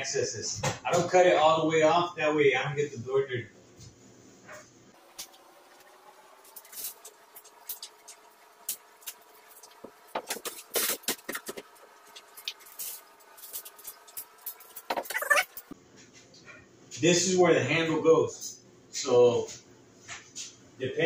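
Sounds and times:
plastic wrap crackling and rustling: 0:09.0 - 0:14.9.

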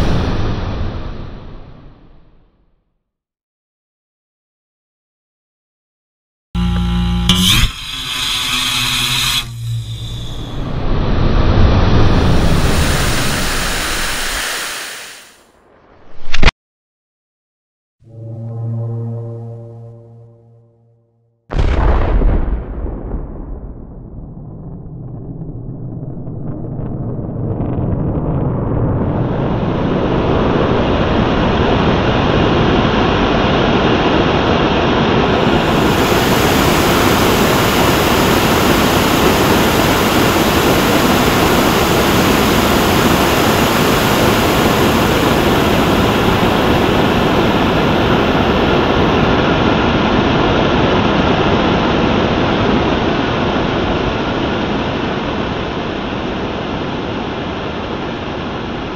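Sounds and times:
rocket engine rushing noise: 0:06.6 - 0:16.5, 0:35.1 - 0:49.7.

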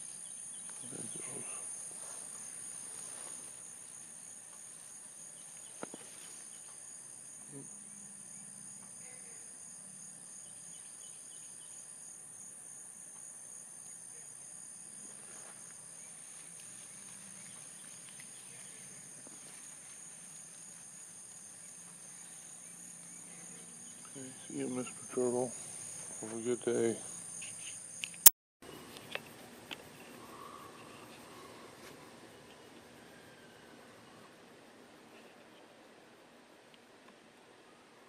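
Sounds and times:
pulsing insect trill: 0:00.0 - 0:28.0.

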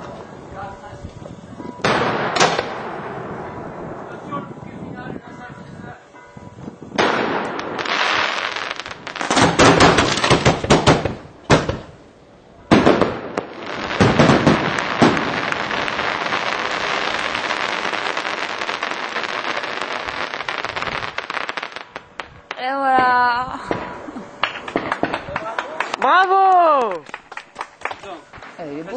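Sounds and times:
firework crackling: 0:00.0 - 0:05.2, 0:06.8 - 0:28.9
firework bangs: 0:01.6 - 0:05.0, 0:06.8 - 0:12.0, 0:12.6 - 0:26.2.

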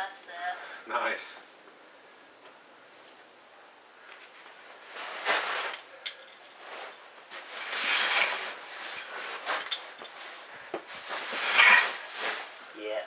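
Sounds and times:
shoes and hands scraping on rock: 0:06.7 - 0:12.5.

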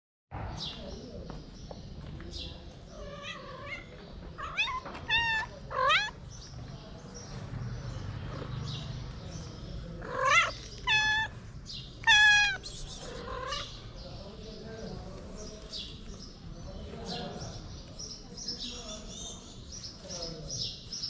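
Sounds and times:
cat meowing: 0:02.9 - 0:06.2, 0:10.0 - 0:11.4, 0:12.0 - 0:13.7.

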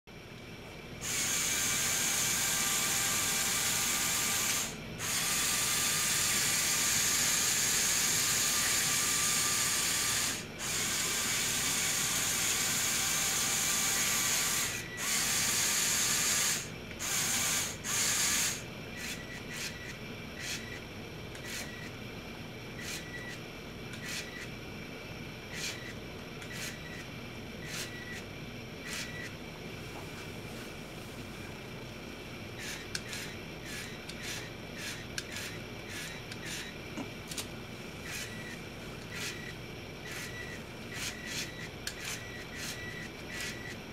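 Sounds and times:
toy electric motors whining: 0:01.0 - 0:20.8, 0:21.4 - 0:21.9, 0:22.8 - 0:24.5, 0:25.5 - 0:27.0, 0:27.6 - 0:28.2, 0:28.8 - 0:29.3, 0:32.6 - 0:36.7, 0:38.0 - 0:43.8.

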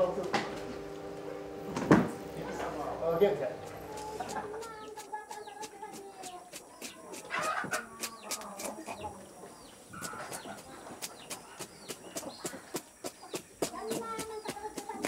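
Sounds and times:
chickens clucking: 0:03.5 - 0:15.0.

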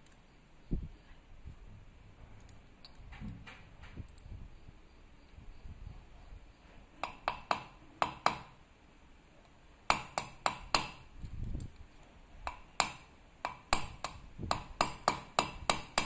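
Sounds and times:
hammer tapping metal: 0:07.0 - 0:08.6, 0:09.9 - 0:11.0, 0:12.5 - 0:16.0.

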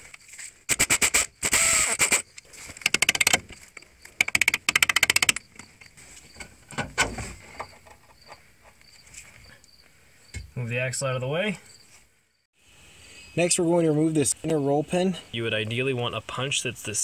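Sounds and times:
pneumatic air ratchet rattling: 0:00.7 - 0:05.6.

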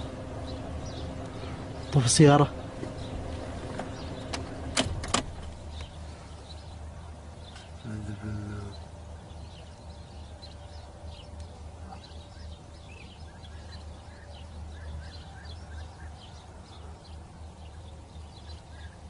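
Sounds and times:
birds chirping: 0:00.0 - 0:19.0
steady low hum: 0:00.0 - 0:19.0.

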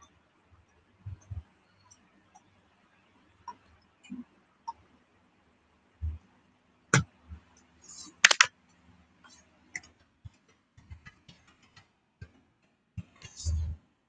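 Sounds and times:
hands tapping and clicking: 0:08.2 - 0:08.5.

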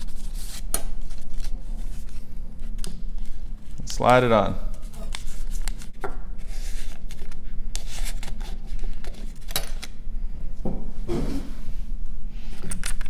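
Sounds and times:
paper rustling: 0:00.0 - 0:04.0, 0:04.7 - 0:09.6.

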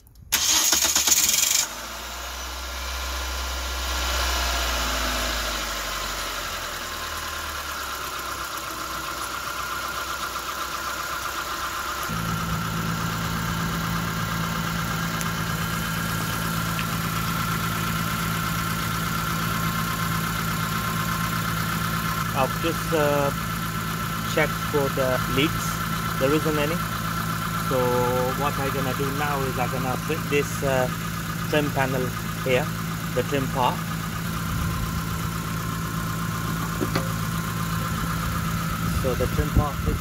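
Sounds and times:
car engine starting and idling: 0:00.0 - 0:40.0
deep steady hum: 0:11.0 - 0:40.0.

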